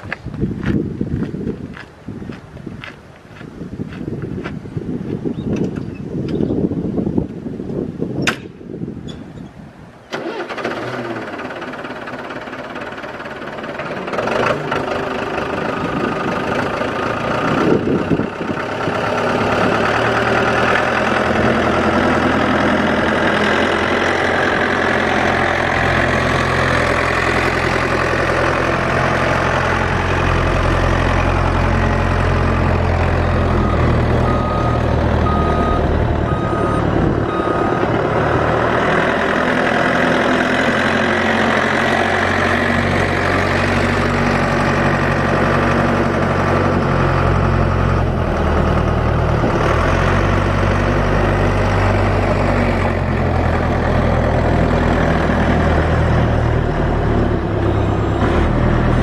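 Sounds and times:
diesel engine running: 10.1s - 59.0s
backup alarm beeping: 33.6s - 37.8s.

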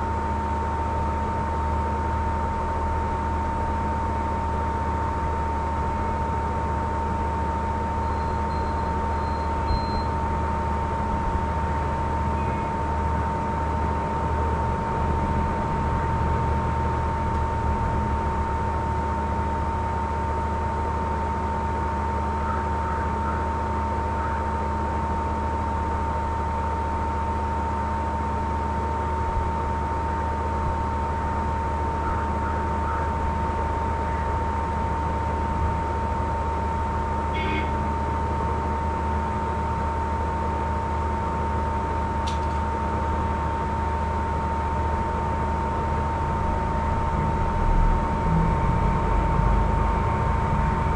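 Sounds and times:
low electrical hum: 0.0s - 50.9s
high whine: 43.0s - 50.9s.

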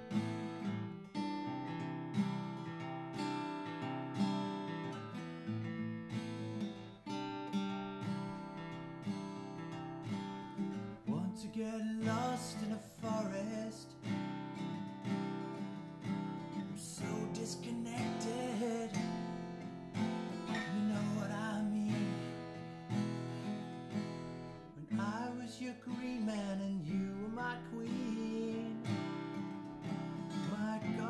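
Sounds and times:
acoustic guitar strumming: 0.0s - 31.0s
man singing: 11.0s - 14.2s, 16.6s - 22.6s, 24.8s - 31.0s.

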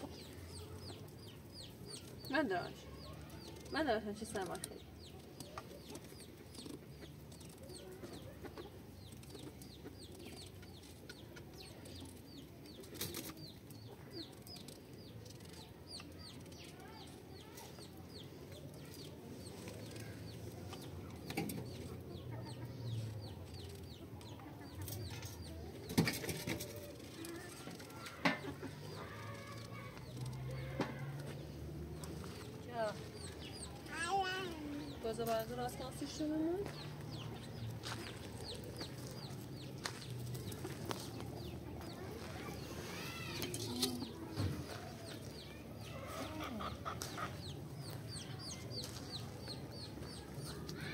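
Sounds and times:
birds chirping: 0.0s - 50.9s.

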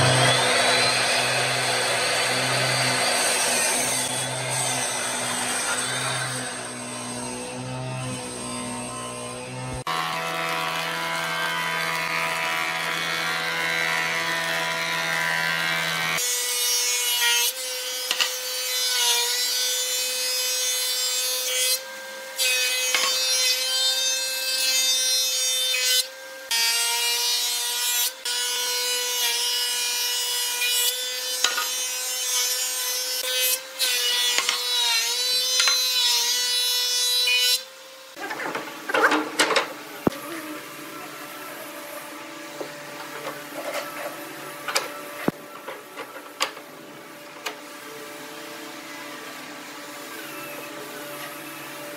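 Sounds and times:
planer motor whine: 0.0s - 13.3s.

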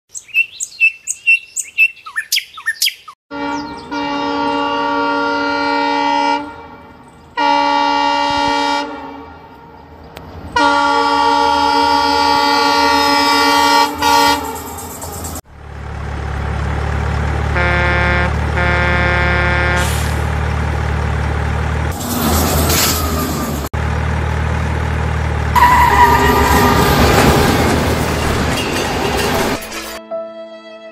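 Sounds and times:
horn beeping: 3.3s - 9.9s, 10.6s - 15.4s, 17.4s - 20.1s, 25.6s - 29.5s
train horn blasts: 3.3s - 15.0s, 17.5s - 20.1s, 25.6s - 28.0s
truck engine rumble: 9.8s - 30.0s.

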